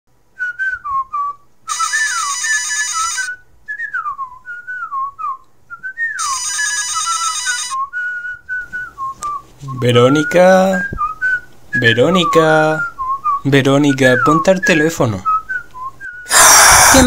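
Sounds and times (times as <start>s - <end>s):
person whistling a tune: 0.4s - 2.3s, 3.2s - 6.4s, 7.8s - 17.0s
electronic telephone ringing: 1.7s - 3.4s, 6.2s - 7.8s.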